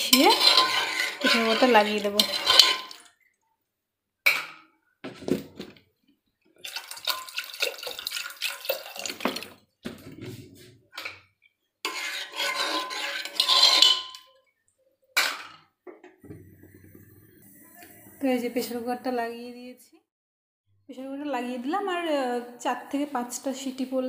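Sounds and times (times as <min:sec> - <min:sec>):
spoon clinking and scraping on pot: 0:00.0 - 0:03.1, 0:06.6 - 0:10.2, 0:11.0 - 0:14.4
water splashing in pot: 0:00.0 - 0:03.4, 0:06.6 - 0:10.1.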